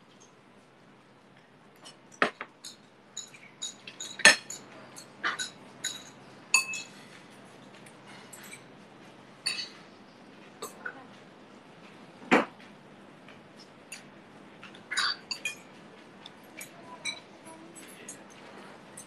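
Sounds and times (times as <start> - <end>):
dishes and cutlery clinking: 1.8 - 8.8, 9.4 - 10.0, 13.6 - 19.0.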